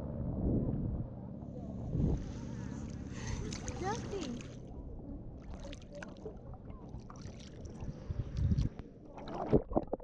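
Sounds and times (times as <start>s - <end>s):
low rumble: 0.0s - 3.8s
seawater sloshing and splashing: 2.7s - 4.7s, 5.4s - 10.0s.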